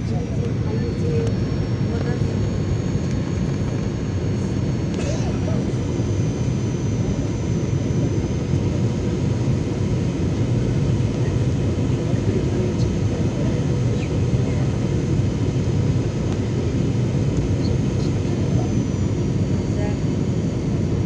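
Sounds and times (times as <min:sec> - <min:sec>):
airliner cabin rumble: 0:00.0 - 0:21.0.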